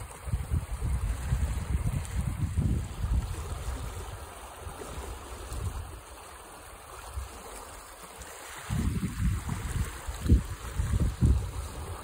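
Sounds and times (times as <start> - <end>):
wind buffeting microphone: 0.0 - 6.1, 8.5 - 12.0
stream rushing: 0.0 - 12.0.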